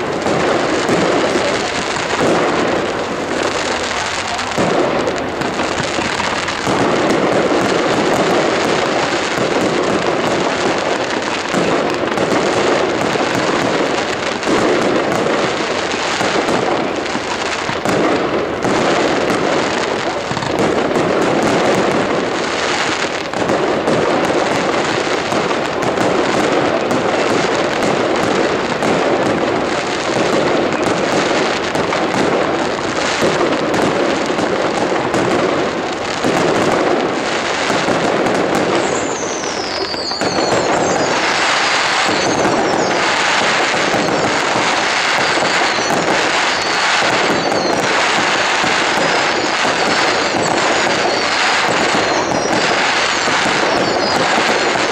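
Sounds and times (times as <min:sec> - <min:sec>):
crackling firework stars: 0:00.0 - 0:54.9
falling firework whistle: 0:00.0 - 0:54.9
firework shell bursts: 0:36.2 - 0:54.9.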